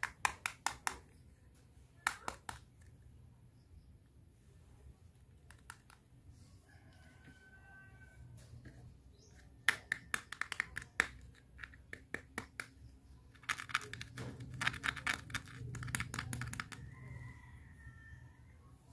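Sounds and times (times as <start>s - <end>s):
plastic toy pieces clicking: 9.7s - 16.9s.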